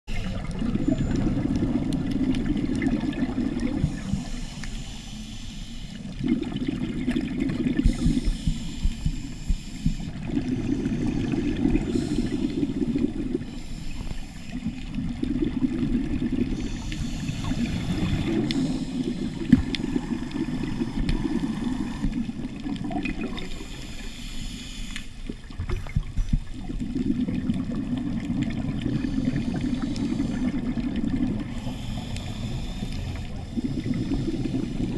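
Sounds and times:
diver breathing through regulator: 0:03.7 - 0:06.2, 0:07.7 - 0:15.0, 0:16.4 - 0:22.3, 0:23.4 - 0:25.2, 0:28.8 - 0:30.7, 0:31.4 - 0:34.9.

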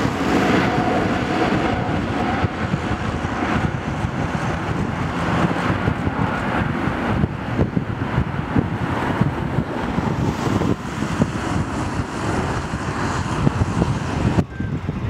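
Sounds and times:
jet engine roar: 0:00.0 - 0:15.0
wind buffeting microphone: 0:00.0 - 0:15.0.

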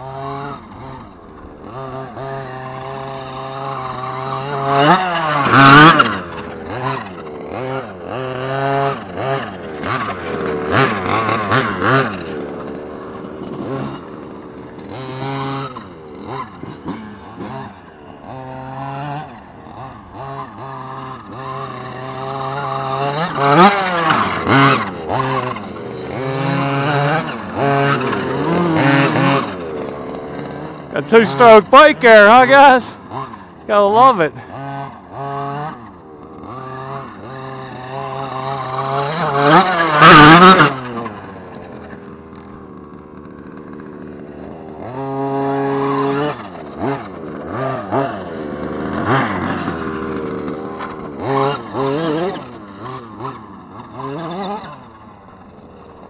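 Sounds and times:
dirt bike revving: 0:00.0 - 0:56.0
rc truck engine revving: 0:00.0 - 0:56.0.

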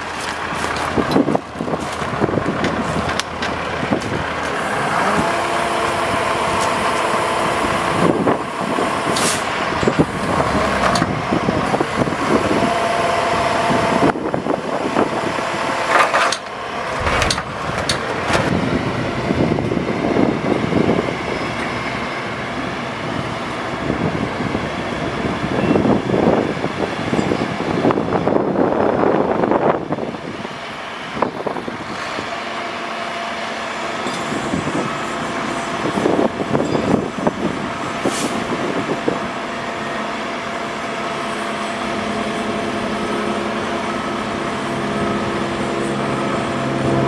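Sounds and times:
diesel engine running: 0:00.0 - 0:47.0
hydraulic whine: 0:04.4 - 0:18.6.

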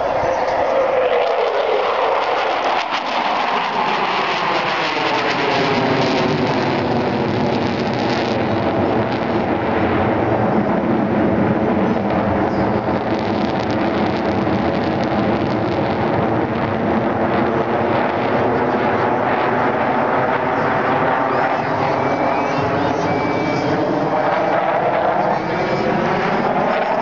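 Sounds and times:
jet fighters roaring overhead: 0:00.0 - 0:27.0.

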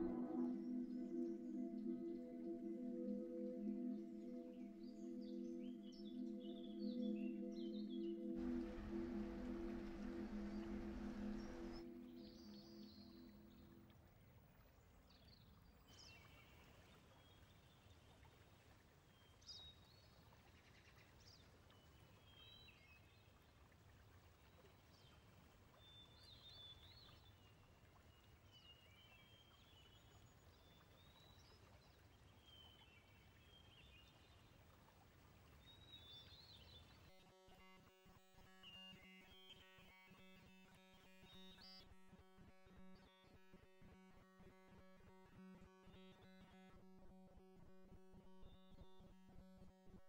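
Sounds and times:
low steady rumble: 0:08.4 - 0:11.9.

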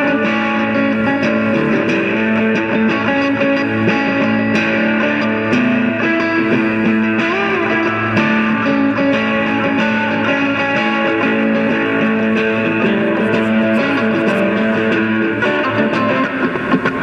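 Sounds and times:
electric guitar music: 0:00.0 - 0:17.0.

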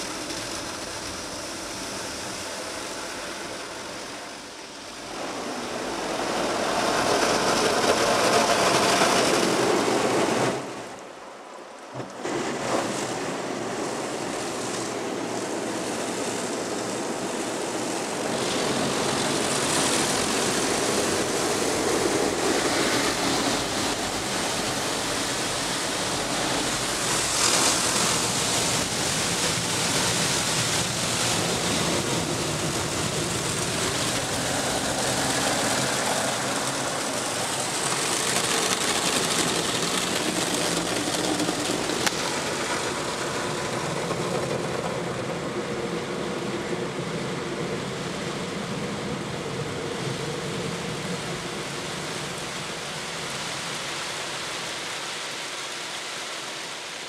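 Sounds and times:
car wash brushes sweeping: 0:12.2 - 0:44.6.

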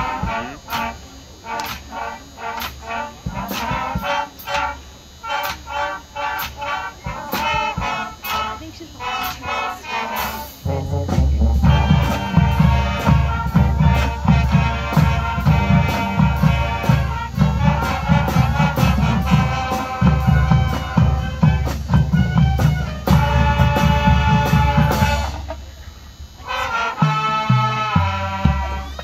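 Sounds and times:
marching band playing: 0:00.0 - 0:29.0
steady drum hits: 0:10.6 - 0:25.4.

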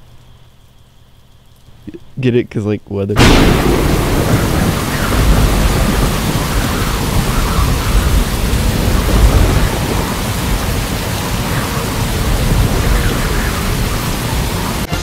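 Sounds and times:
heavy rain pouring: 0:03.2 - 0:15.0.

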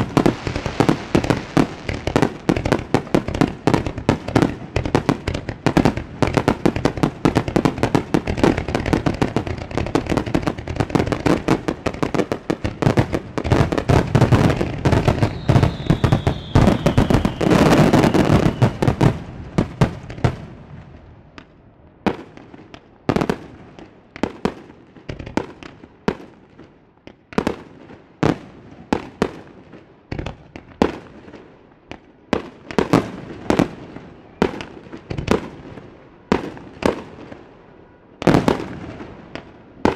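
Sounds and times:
firework bangs: 0:00.0 - 0:21.0, 0:38.2 - 0:39.9
fireworks bursting and crackling: 0:00.0 - 0:39.9
falling firework whistle: 0:14.9 - 0:19.2.

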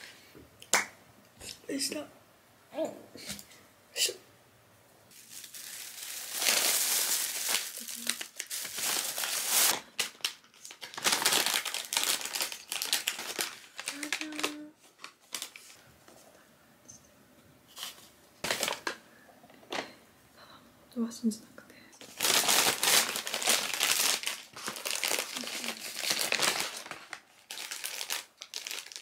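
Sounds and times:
paper bag crinkling: 0:05.1 - 0:15.8, 0:17.8 - 0:19.0, 0:22.0 - 0:29.0.

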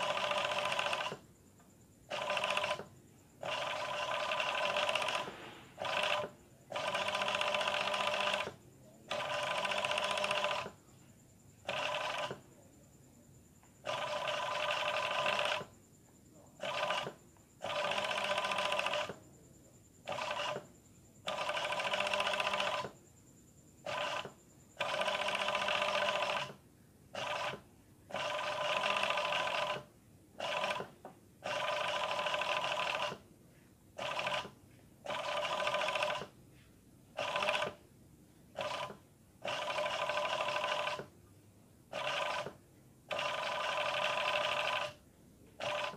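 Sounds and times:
overlock sewing machine whine: 0:00.0 - 0:01.2, 0:02.1 - 0:10.8, 0:13.9 - 0:15.7, 0:16.6 - 0:19.2, 0:20.0 - 0:20.6, 0:21.3 - 0:23.0, 0:23.9 - 0:26.5, 0:27.2 - 0:33.2, 0:35.1 - 0:36.3, 0:37.2 - 0:37.8, 0:38.6 - 0:41.1, 0:42.0 - 0:45.0.

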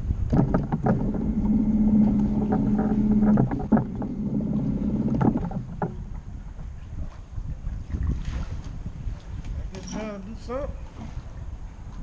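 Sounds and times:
boat motor humming: 0:00.0 - 0:08.1
wind and water wash: 0:00.0 - 0:12.0.

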